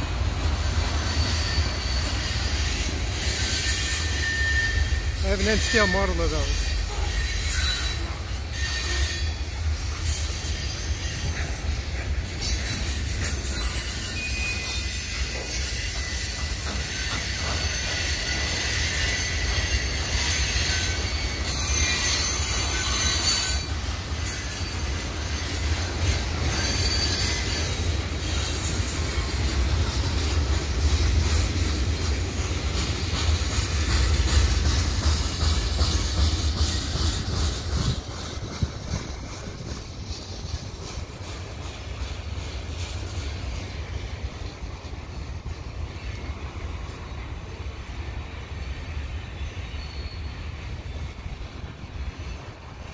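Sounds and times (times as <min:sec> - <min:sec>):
high flange squeal: 0:00.0 - 0:11.4, 0:12.2 - 0:30.4
wheels rumbling on rail: 0:00.0 - 0:52.9.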